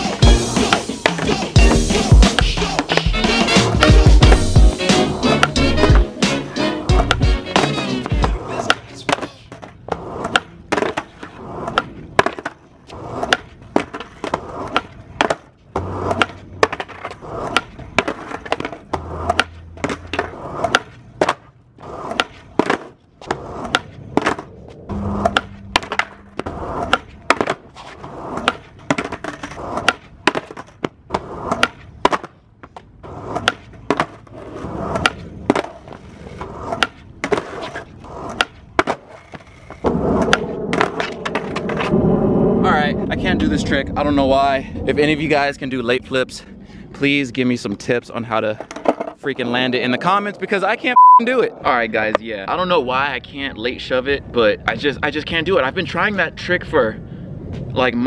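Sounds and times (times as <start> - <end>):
skateboard wheels rolling: 0.0 - 56.6
skateboard tail pops: 2.2 - 6.4, 7.0 - 12.6, 13.2 - 24.5, 25.1 - 34.2, 34.9 - 41.9
skateboard clacking on pavement: 2.3 - 24.5, 25.2 - 41.9, 48.4 - 49.5.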